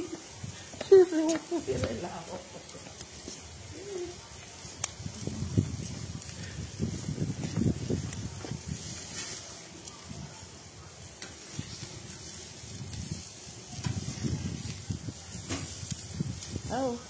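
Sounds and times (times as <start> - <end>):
low uneven rumble: 0.0 - 17.0
meat sizzling on grill: 0.0 - 17.0.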